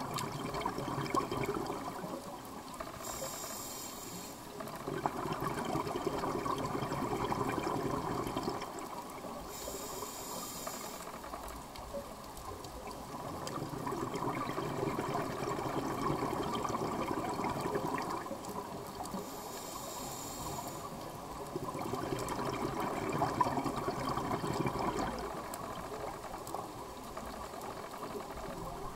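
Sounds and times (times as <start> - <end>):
underwater exhaled bubbling: 0.0 - 3.2, 4.5 - 9.7, 10.8 - 28.9
regulator inhalation hiss: 2.9 - 4.6, 9.4 - 11.4, 19.1 - 21.1.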